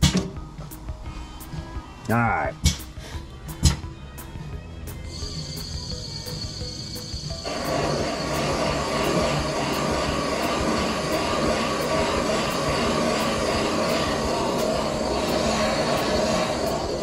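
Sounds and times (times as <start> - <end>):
valve seat cutter grinding whir: 5.1 - 17.0.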